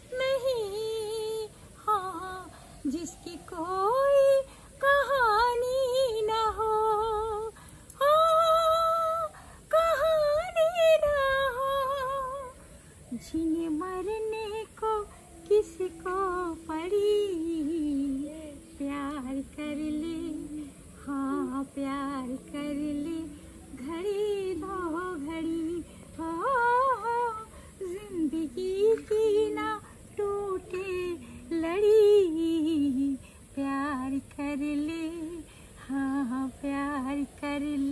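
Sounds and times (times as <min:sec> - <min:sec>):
woman singing with vibrato: 0:00.0 - 0:37.9.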